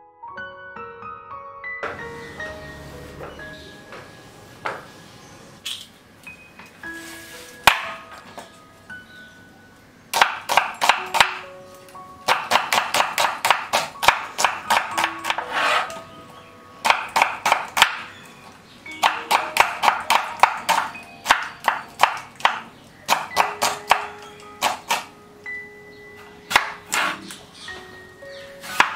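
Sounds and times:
soft background music: 0:00.0 - 0:28.9
knife chopping on wooden board: 0:07.7 - 0:08.0, 0:10.2 - 0:11.4, 0:12.3 - 0:15.9, 0:19.0 - 0:25.1, 0:28.6 - 0:28.9.

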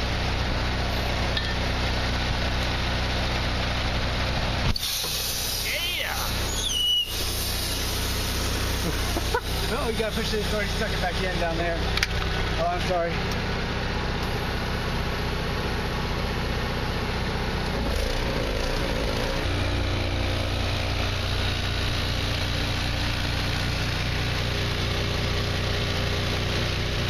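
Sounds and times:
air compressor humming: 0:04.6 - 0:15.9.

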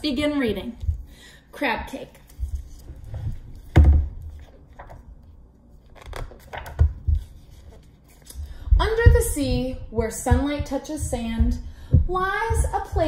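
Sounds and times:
pages rustling: 0:02.2 - 0:08.4
book knocking on table: 0:03.6 - 0:04.2.

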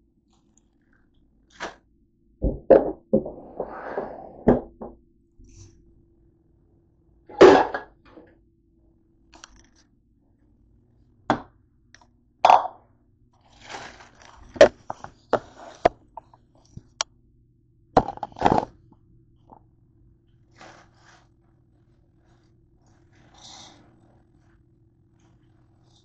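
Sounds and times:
faint steady hum: 0:00.0 - 0:26.0
bowl knocked on countertop: 0:02.4 - 0:03.3
rustling: 0:13.4 - 0:15.9.

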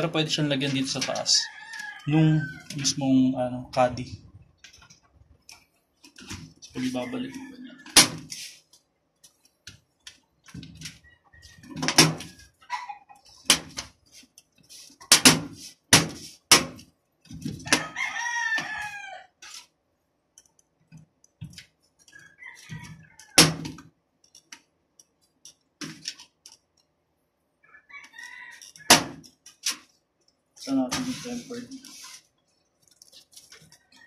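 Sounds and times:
rooster crowing: 0:01.2 - 0:03.0, 0:06.8 - 0:08.0, 0:17.6 - 0:19.4, 0:22.2 - 0:23.4, 0:27.6 - 0:29.0.

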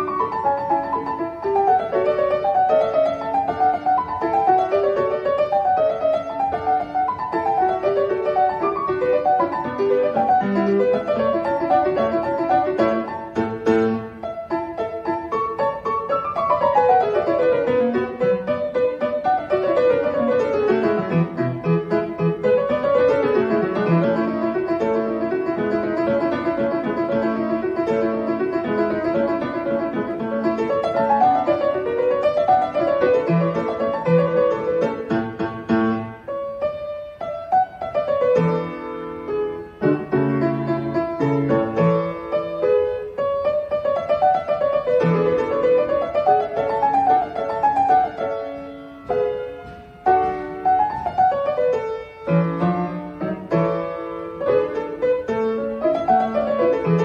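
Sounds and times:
solo grand piano: 0:00.0 - 0:57.0.

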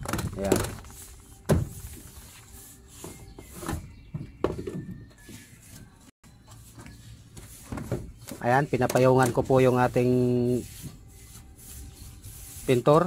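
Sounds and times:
paintbrush swishing on metal: 0:05.2 - 0:13.0.

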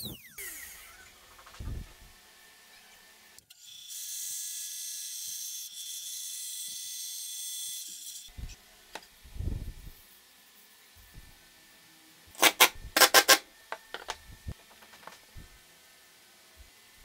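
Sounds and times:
wood pieces thumping on workbench: 0:13.9 - 0:15.2.

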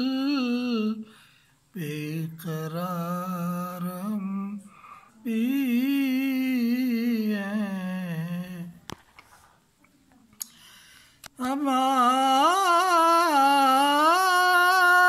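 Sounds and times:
elderly man singing unaccompanied: 0:00.0 - 0:01.1, 0:01.7 - 0:08.9, 0:11.4 - 0:15.0.

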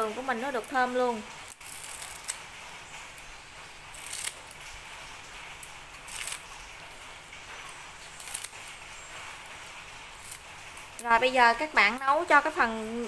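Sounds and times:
scissors snipping leaves: 0:00.0 - 0:02.4, 0:03.9 - 0:04.6, 0:05.6 - 0:06.5, 0:08.1 - 0:08.8, 0:10.2 - 0:10.4, 0:11.0 - 0:12.8.

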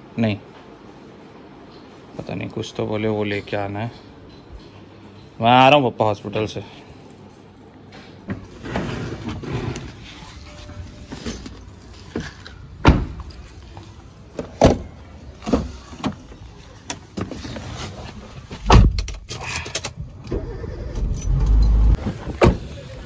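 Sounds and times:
car door slamming: 0:12.8 - 0:13.2
car engine cranking and starting: 0:19.0 - 0:22.9.

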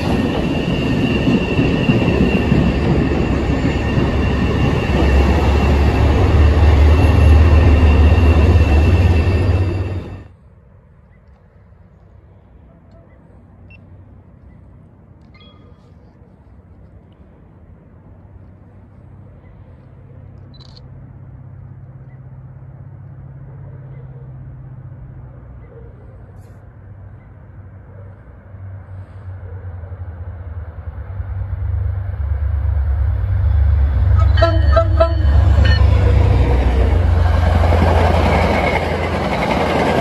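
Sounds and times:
rushing of train cars passing: 0:00.0 - 0:10.5, 0:21.0 - 0:40.0
train rumbling past: 0:00.0 - 0:40.0
train horn toots: 0:34.0 - 0:37.7.

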